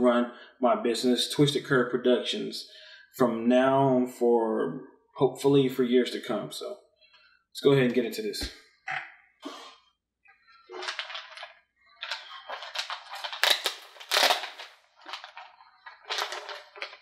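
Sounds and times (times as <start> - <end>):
plastic packaging crinkling: 10.7 - 17.0.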